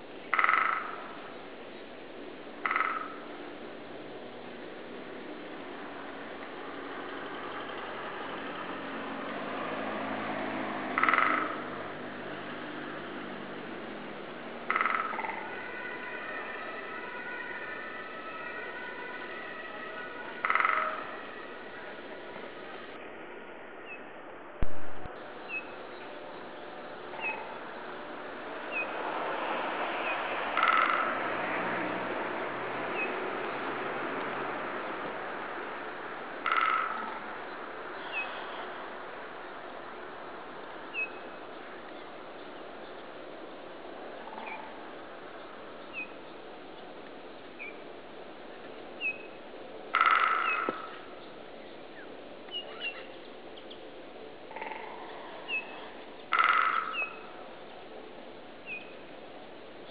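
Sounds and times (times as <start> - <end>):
steady background noise: 0.0 - 59.9
woodpecker drumming on wood: 0.3 - 1.1, 2.6 - 3.2, 11.0 - 11.7, 14.7 - 16.1, 20.4 - 21.2, 30.6 - 31.2, 36.4 - 37.1, 49.9 - 51.0, 56.3 - 57.2
loud thump with low rumble: 24.6 - 25.2.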